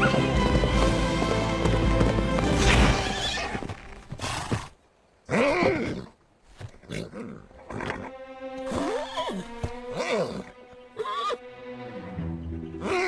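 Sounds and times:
music: 0.0 - 3.3, 7.5 - 13.0
horse whinnying: 2.6 - 4.7, 6.9 - 11.4.

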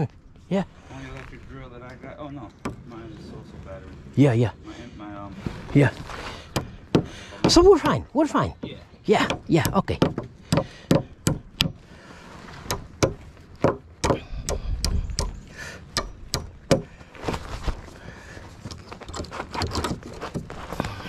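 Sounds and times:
sharp knocks and clicks: 8.6 - 11.8, 12.6 - 15.4.

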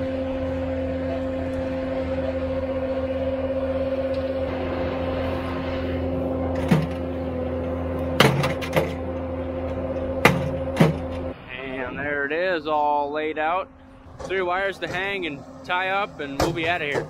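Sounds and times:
engine running: 0.0 - 17.0
post hammer bangs: 10.2 - 11.2.

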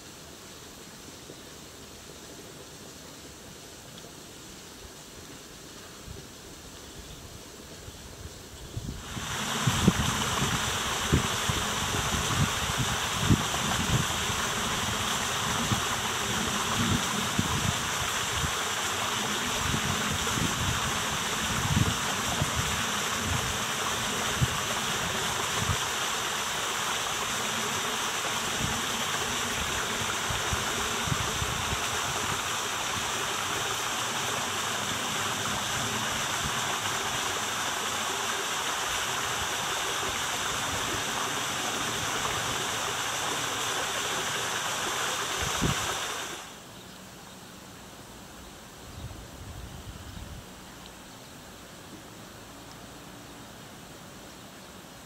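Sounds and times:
wind buffeting microphone: 8.7 - 18.7, 19.3 - 25.9, 28.5 - 33.1, 45.4 - 46.0
stream rushing: 8.8 - 55.0.

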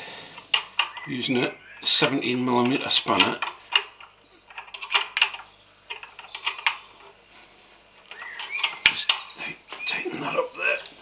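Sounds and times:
spanner clinking on metal nut: 2.6 - 6.8.

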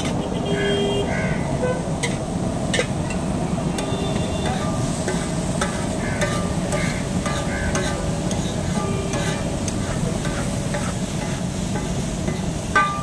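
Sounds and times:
metal spatula scraping iron: 2.0 - 2.9, 3.8 - 13.0
food sizzling on a griddle: 2.0 - 13.0.

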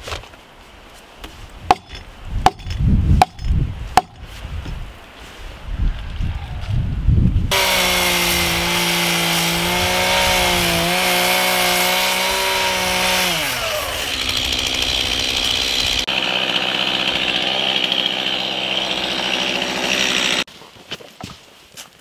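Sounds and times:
chainsaw cutting a log: 7.5 - 20.5.

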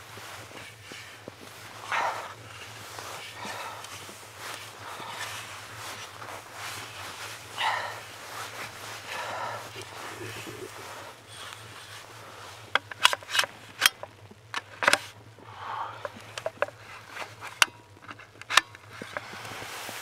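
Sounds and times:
shovel crunching snow: 0.0 - 13.6
shovel blade scraping clicks: 12.7 - 15.2, 16.0 - 19.6.

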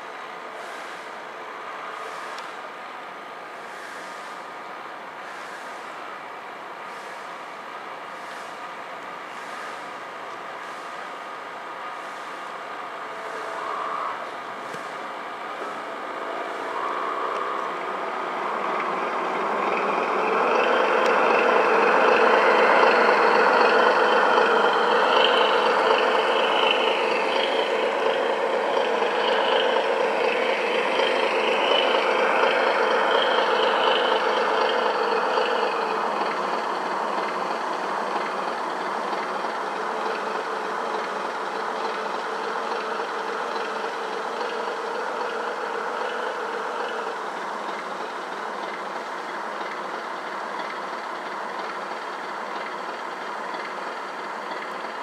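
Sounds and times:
model boats humming and whining: 0.0 - 55.0.

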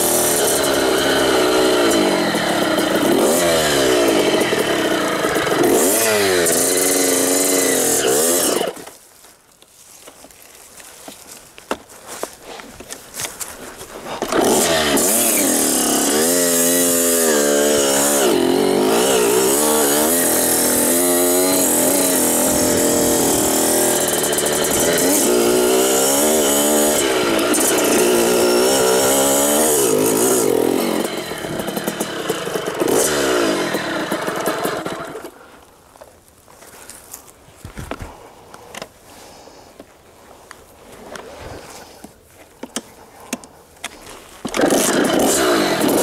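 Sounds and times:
dirt bike engine revving: 0.0 - 8.9, 14.1 - 35.3, 44.4 - 46.0.

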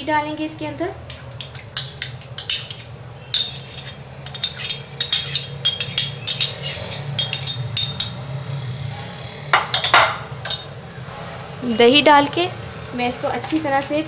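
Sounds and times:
steady low hum: 0.0 - 13.5
spoon scraping ceramic dish: 1.4 - 8.2, 9.5 - 10.7.

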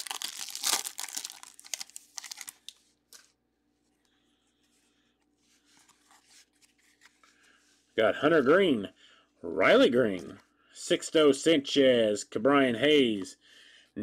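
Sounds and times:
foil wrapper tearing and crinkling: 0.0 - 2.7
cards rustling: 0.0 - 3.4, 5.6 - 7.6.

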